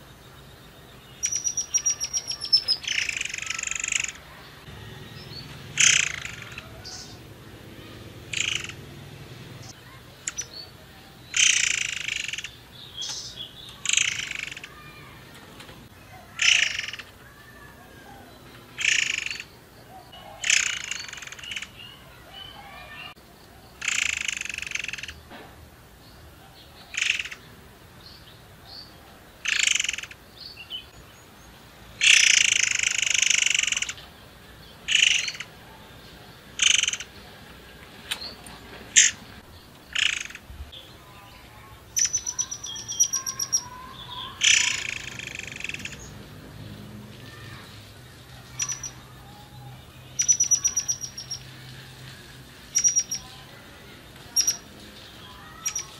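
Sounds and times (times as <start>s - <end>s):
bird singing loud phrases: 0.0s - 25.3s, 26.0s - 37.4s, 38.1s - 55.9s.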